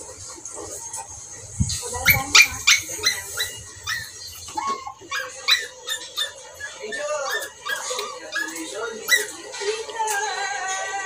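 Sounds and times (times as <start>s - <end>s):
dog yipping and whining: 2.0s - 9.4s.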